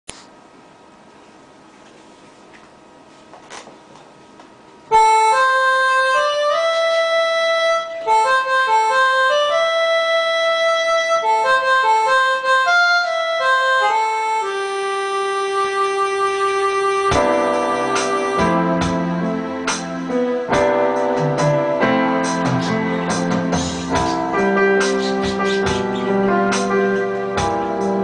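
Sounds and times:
electronic keyboard melody: 4.9s - 28.0s.

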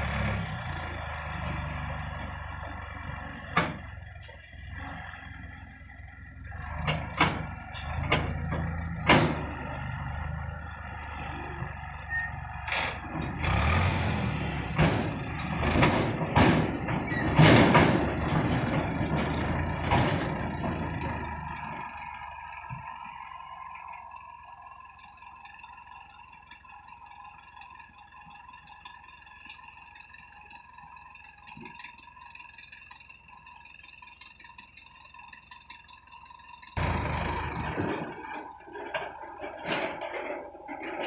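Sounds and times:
tractor engine running: 0.0s - 41.0s
trolley clanking and rattling: 6.5s - 13.8s, 14.5s - 23.0s, 35.3s - 41.0s.

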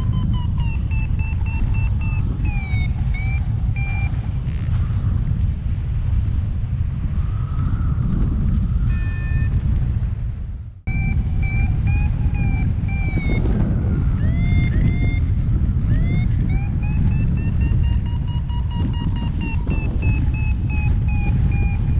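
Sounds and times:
short electronic beeps: 0.0s - 4.7s, 8.9s - 9.5s, 10.9s - 21.9s
wind buffeting microphone: 0.0s - 21.9s.

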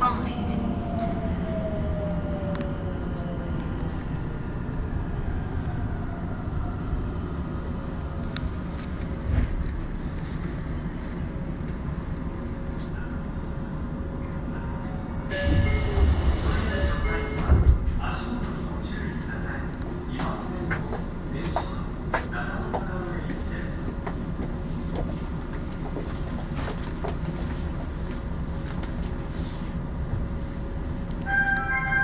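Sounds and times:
train wheels rumbling: 15.3s - 31.0s.

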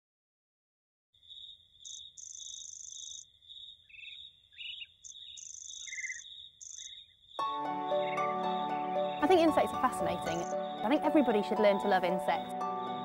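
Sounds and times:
cricket chirping: 1.2s - 10.9s
gliding bird chirps: 1.2s - 10.9s
buzzy high insect trills: 1.3s - 11.2s.

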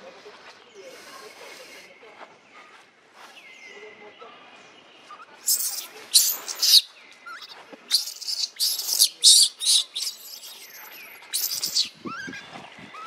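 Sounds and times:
baby monkey screaming: 5.4s - 12.4s.

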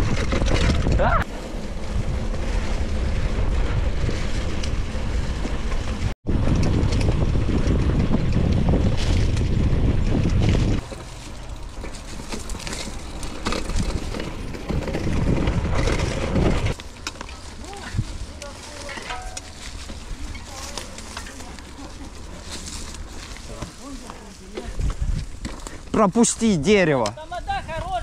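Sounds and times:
wind buffeting microphone: 0.0s - 16.8s, 17.4s - 26.6s, 27.2s - 28.0s
bike rattling: 0.0s - 28.0s
tyres rolling over dirt trail: 0.0s - 28.0s.

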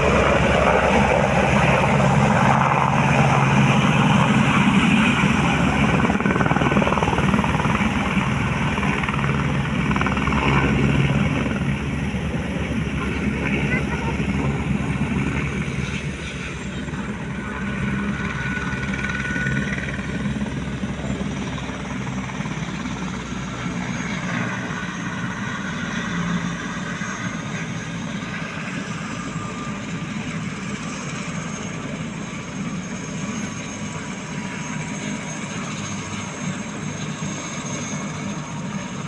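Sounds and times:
helicopter engine whine: 0.0s - 39.0s
helicopter rotor beat: 0.0s - 39.0s.

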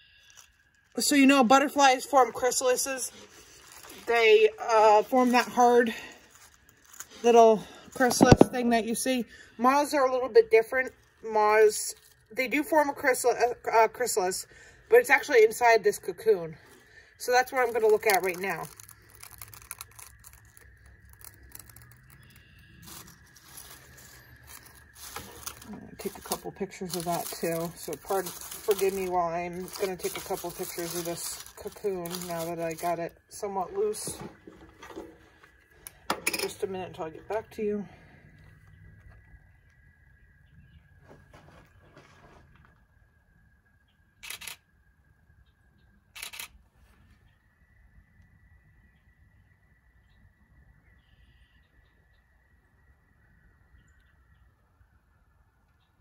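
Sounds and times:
cocoon silk and dry leaves rustling: 0.1s - 38.0s.

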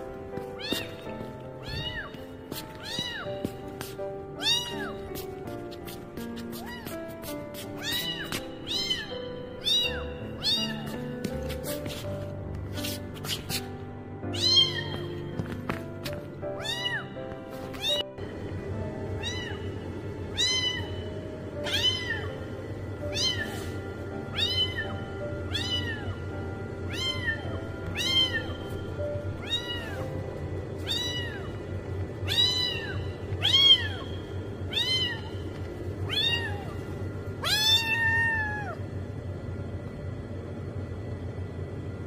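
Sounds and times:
kitten meowing: 0.6s - 2.2s, 2.8s - 3.4s, 4.4s - 5.0s, 6.6s - 7.0s, 7.8s - 11.0s, 14.4s - 15.1s, 16.6s - 17.2s, 19.2s - 19.6s, 20.3s - 21.0s, 21.6s - 22.4s, 23.1s - 23.6s, 24.4s - 24.9s, 25.5s - 26.2s, 26.9s - 28.6s, 29.4s - 30.0s, 30.8s - 31.6s, 32.3s - 34.1s, 34.7s - 35.4s, 36.0s - 36.8s, 37.4s - 38.8s.

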